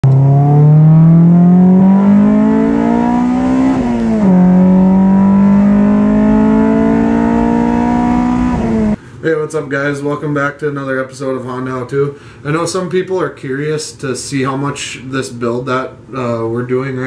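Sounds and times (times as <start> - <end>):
car engine revving: 0.0 - 9.0.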